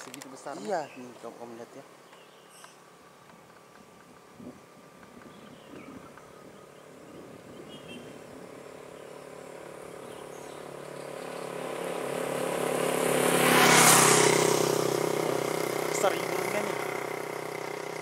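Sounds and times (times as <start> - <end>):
vehicle engine passing by: 7.6 - 18.0.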